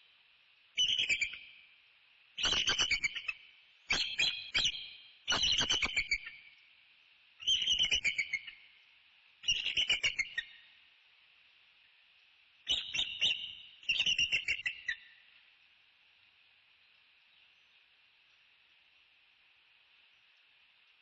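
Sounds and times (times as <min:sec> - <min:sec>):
eagle chittering calls: 0:00.8 - 0:01.4, 0:02.4 - 0:06.4, 0:07.4 - 0:08.7, 0:09.4 - 0:10.6, 0:12.7 - 0:15.2.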